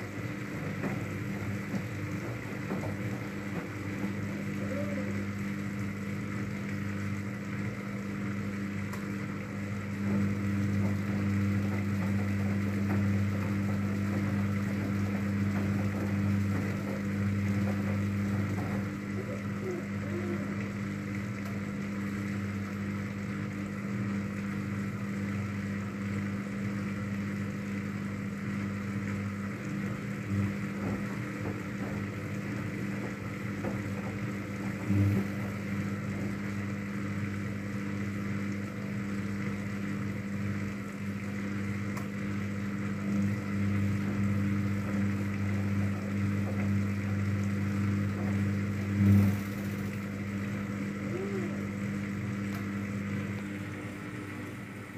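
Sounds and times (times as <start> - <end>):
washing machine motor hum: 0.0 - 54.9
washing machine drum thump: 0.1 - 4.6, 10.0 - 20.0, 30.0 - 36.6.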